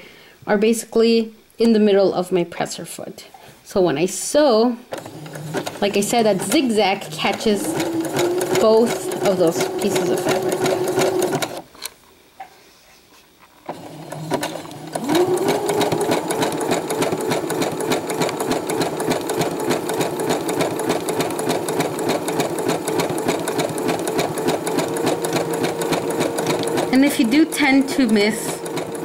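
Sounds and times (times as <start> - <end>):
sewing machine stitching: 4.9 - 11.7, 13.7 - 29.0
rapid needle ticks: 18.2 - 27.0.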